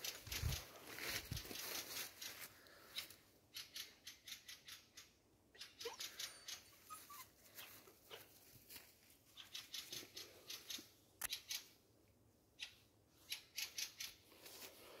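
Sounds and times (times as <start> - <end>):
footsteps through undergrowth: 0.0 - 3.2, 7.0 - 9.8, 14.3 - 15.0.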